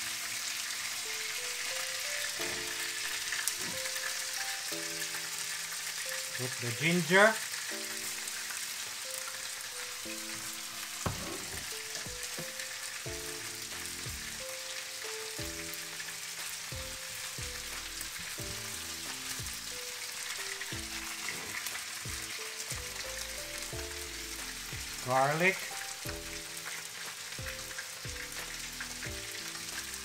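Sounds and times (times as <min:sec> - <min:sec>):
food sizzling in hot oil: 0:00.0 - 0:30.0
knock: 0:11.0 - 0:12.5.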